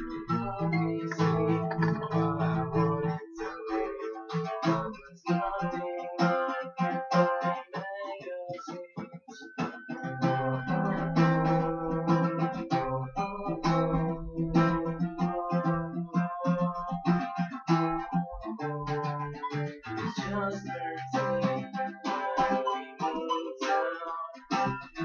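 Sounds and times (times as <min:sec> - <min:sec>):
acoustic guitar playing: 0:00.0 - 0:25.0.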